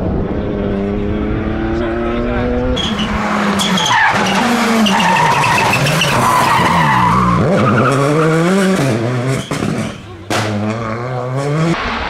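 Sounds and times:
rally car engine revving: 0:00.0 - 0:12.0
tyre noise: 0:02.7 - 0:11.8.

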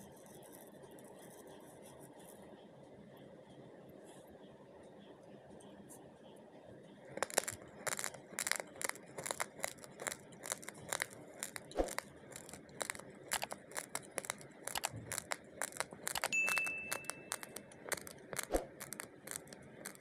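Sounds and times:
rice grains crunching: 0:07.2 - 0:20.0
high beep: 0:16.3 - 0:17.7.

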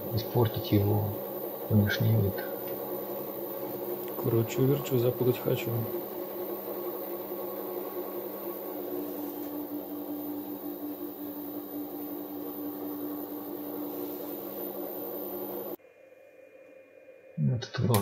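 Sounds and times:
lathe motor hum with high whine: 0:00.0 - 0:17.3
steady tone: 0:00.0 - 0:18.0.

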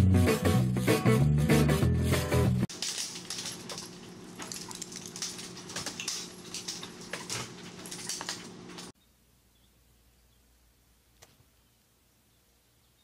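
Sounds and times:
dog claws clicking and scratching: 0:02.7 - 0:09.0.

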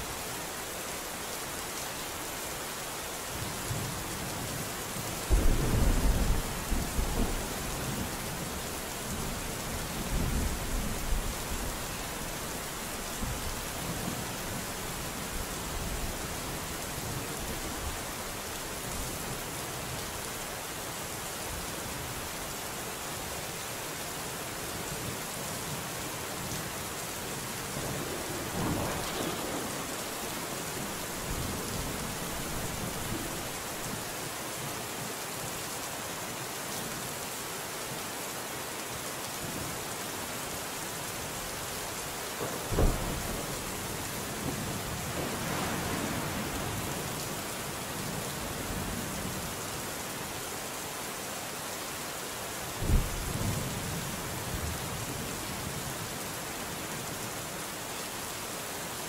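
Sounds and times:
steady rain: 0:00.0 - 0:59.0
sharp thunderclap: 0:05.3 - 0:07.5, 0:28.0 - 0:33.3, 0:42.7 - 0:43.5
thunder rumbling: 0:05.3 - 0:11.9, 0:27.7 - 0:33.6, 0:42.7 - 0:47.0.

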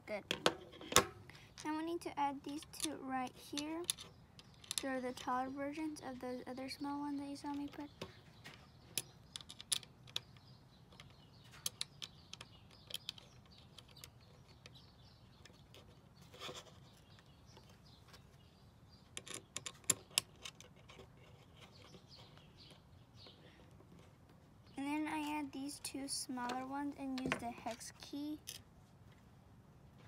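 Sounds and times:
small metal clicks and taps: 0:02.5 - 0:05.9, 0:07.5 - 0:14.8, 0:19.1 - 0:21.1.

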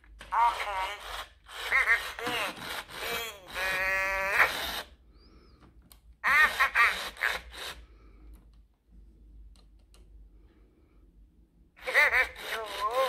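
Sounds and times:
toy chattering electronic voice: 0:00.3 - 0:04.9, 0:06.2 - 0:07.7, 0:11.8 - 0:13.0.

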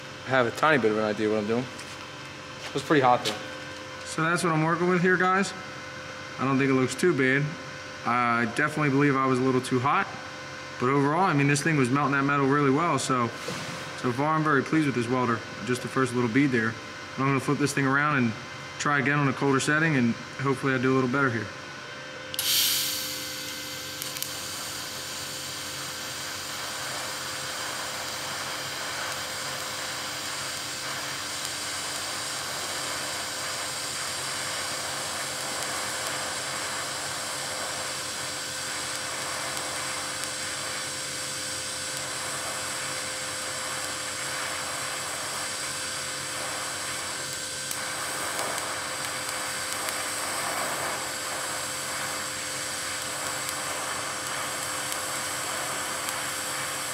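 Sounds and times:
welding arc hissing: 0:22.3 - 0:56.9.

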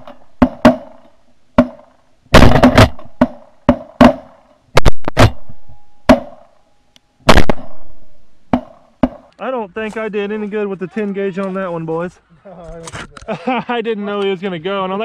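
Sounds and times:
shotgun blasts: 0:01.6 - 0:06.5, 0:07.2 - 0:09.2.

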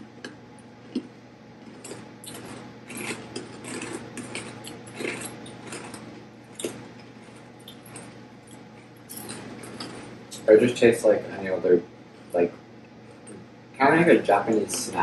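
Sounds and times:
faint steady hum: 0:00.0 - 0:15.0
rice crackers being chewed: 0:00.8 - 0:10.5.

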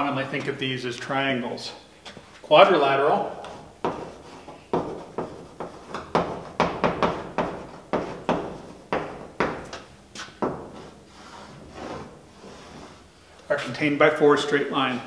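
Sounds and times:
chalk tapping and scratching: 0:03.4 - 0:13.0.

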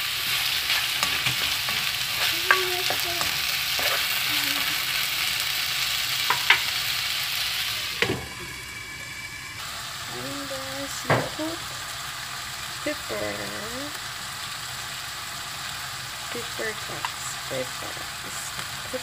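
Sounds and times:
spatula stirring: 0:00.0 - 0:05.1
food sizzling in a wok: 0:00.0 - 0:19.0.

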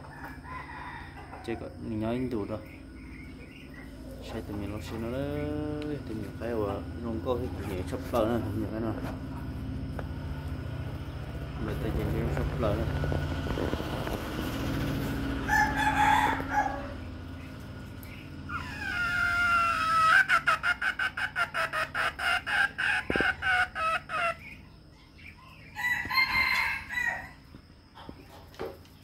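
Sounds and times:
rooster crowing: 0:00.0 - 0:01.9, 0:14.8 - 0:17.3, 0:18.5 - 0:20.5, 0:25.5 - 0:27.5
chicken calls: 0:00.0 - 0:29.0.

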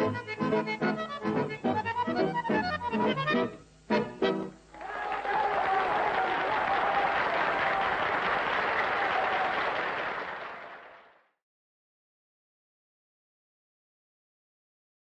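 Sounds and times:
audience applauding: 0:04.7 - 0:11.4.

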